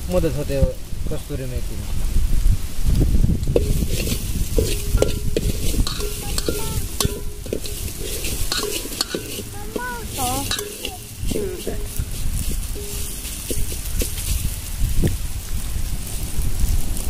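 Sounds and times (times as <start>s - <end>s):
spices sizzling in oil: 3.4s - 17.0s
ladle scraping metal pot: 3.5s - 14.6s
ladle clinking against pot: 3.6s - 14.3s.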